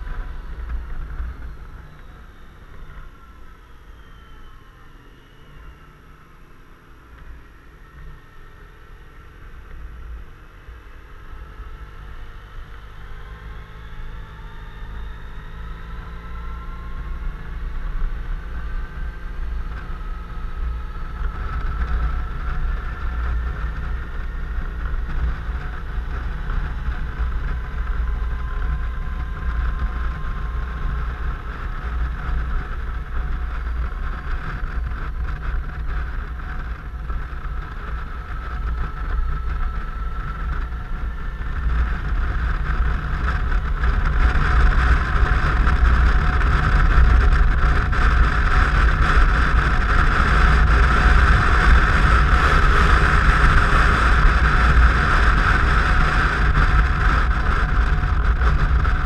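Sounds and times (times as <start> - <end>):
wind buffeting rumble: 0.0 - 4.7, 11.2 - 59.0
scooter engine whine rising: 0.0 - 59.0.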